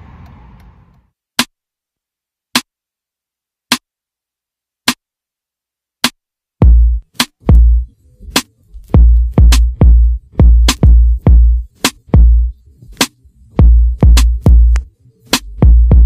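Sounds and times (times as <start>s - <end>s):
heavy bass drum hits: 6.6s - 7.7s
electronic beat music: 6.6s - 16.0s.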